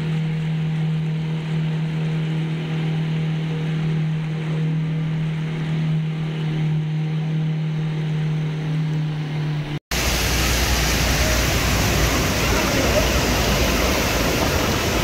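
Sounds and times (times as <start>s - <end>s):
steady low hum: 0.0s - 15.0s
loud even rushing noise: 9.9s - 15.0s.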